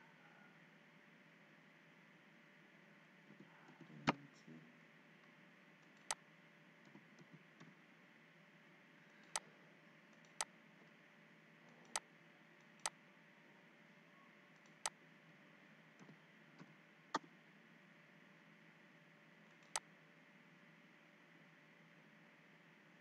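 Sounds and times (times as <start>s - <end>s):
computer mouse clicks: 5.8s - 6.2s, 9.1s - 9.5s, 10.1s - 10.5s, 11.7s - 13.0s, 14.6s - 15.0s, 19.5s - 19.9s.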